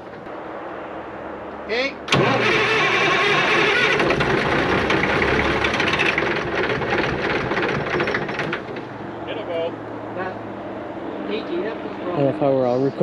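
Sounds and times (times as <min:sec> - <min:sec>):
diesel engine clattering: 0:02.1 - 0:09.2.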